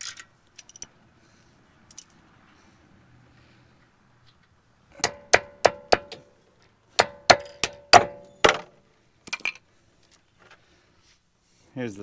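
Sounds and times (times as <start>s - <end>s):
hammer striking steel: 5.0s - 6.3s, 7.0s - 8.7s.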